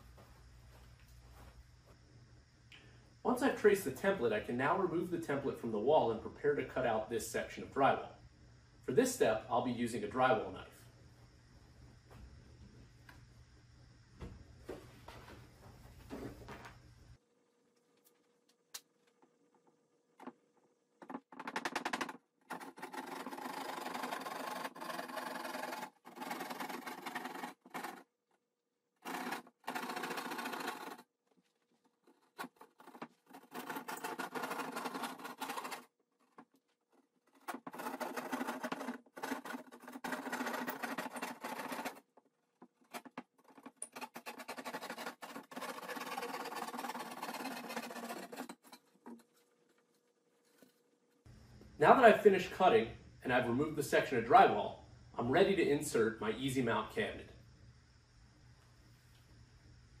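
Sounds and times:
drywall knife sawing drywall: 0:22.5 - 0:28.1, 0:31.9 - 0:35.9, 0:37.5 - 0:42.1, 0:43.0 - 0:49.1.

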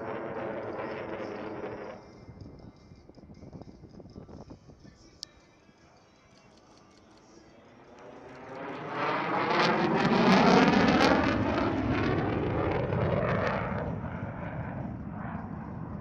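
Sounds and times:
fighter jet flying past: 0:00.0 - 0:02.2, 0:07.5 - 0:16.0.

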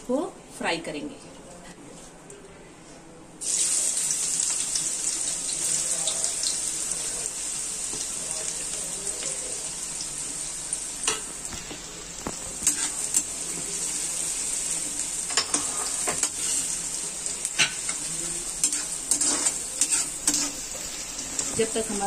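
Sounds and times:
onions sizzling in oil: 0:03.4 - 0:22.0
metal ladle scraping pan: 0:18.6 - 0:20.6.

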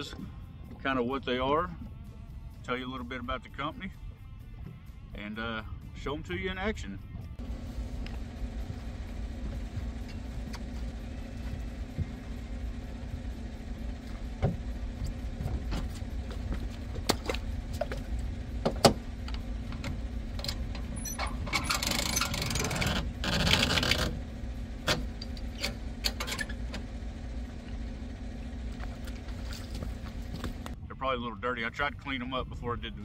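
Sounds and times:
steady low rumble: 0:00.0 - 0:33.0
winch strap rasping: 0:13.8 - 0:27.0
metallic clicks and rattles: 0:17.0 - 0:24.2.

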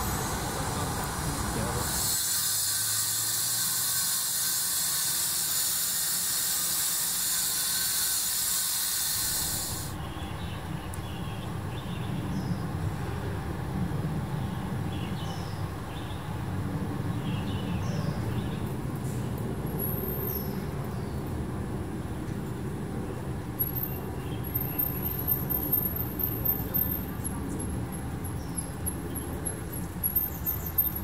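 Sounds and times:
traffic rumble: 0:00.0 - 0:02.2, 0:09.8 - 0:31.0
engine-driven sprayer hissing: 0:00.0 - 0:10.0.

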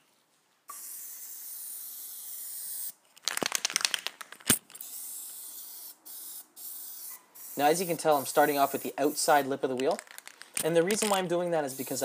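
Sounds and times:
aerosol can spraying: 0:00.7 - 0:03.0, 0:04.5 - 0:09.7, 0:10.7 - 0:12.0
mixing ball rattling in can: 0:03.2 - 0:04.8, 0:09.7 - 0:11.3.

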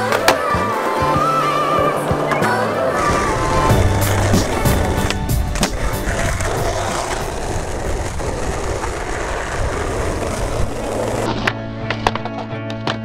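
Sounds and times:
music: 0:00.0 - 0:07.9, 0:10.2 - 0:13.0
skateboard clacks: 0:00.0 - 0:13.0
skateboard wheels rolling on tiles: 0:00.0 - 0:13.0.

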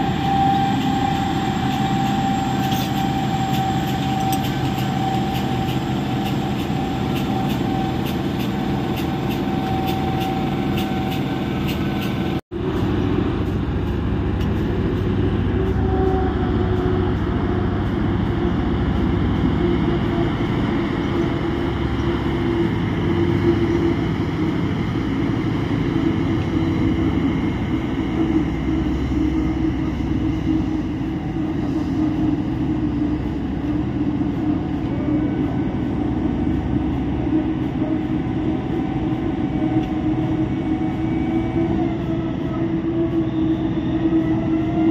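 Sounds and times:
haul truck diesel engines: 0:00.0 - 0:44.9.

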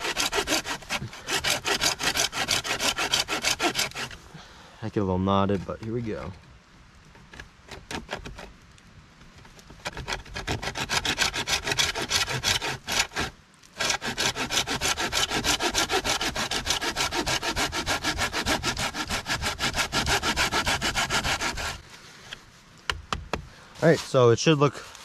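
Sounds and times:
hand saw cutting a log: 0:00.0 - 0:04.2, 0:07.6 - 0:08.5, 0:09.7 - 0:21.8.

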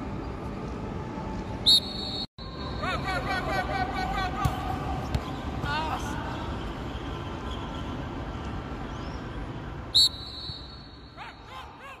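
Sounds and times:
open-air background noise: 0:00.0 - 0:12.0
whistle blast: 0:01.6 - 0:02.3, 0:09.9 - 0:11.1.

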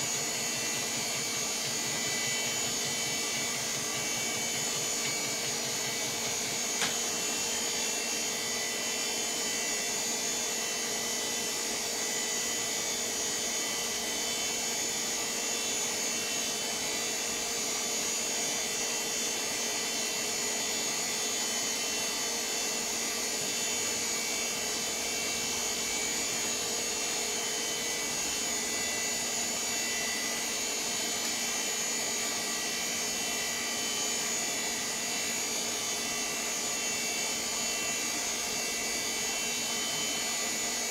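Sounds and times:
computer fans whirring: 0:00.0 - 0:40.9.

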